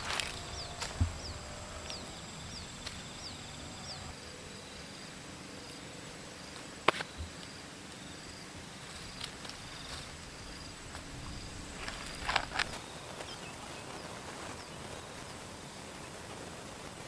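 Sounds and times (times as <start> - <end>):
high falling bird chirp: 0.0 - 4.1
faint high insect whine: 0.0 - 17.0.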